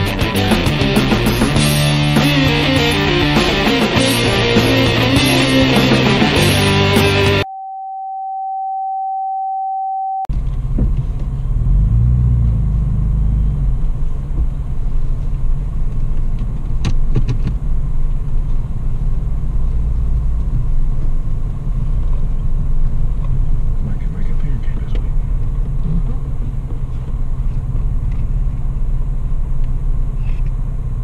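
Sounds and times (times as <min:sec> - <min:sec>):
car engine rumbling: 0:00.0 - 0:07.4, 0:10.3 - 0:31.0
rock music: 0:00.0 - 0:07.5
steady pure beep tone: 0:07.4 - 0:10.3.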